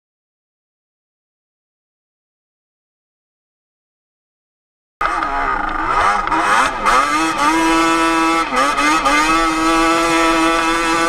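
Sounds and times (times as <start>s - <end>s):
two-stroke engine revving high: 5.0s - 11.0s.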